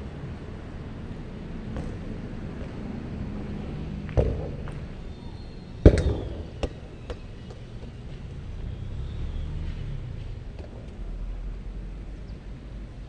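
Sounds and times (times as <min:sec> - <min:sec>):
ball bouncing: 0:01.6 - 0:02.9, 0:04.0 - 0:05.0, 0:05.8 - 0:08.3
ball banging against something hard: 0:04.1 - 0:04.9, 0:05.9 - 0:07.6
football thudding: 0:04.1 - 0:04.9, 0:05.8 - 0:07.7.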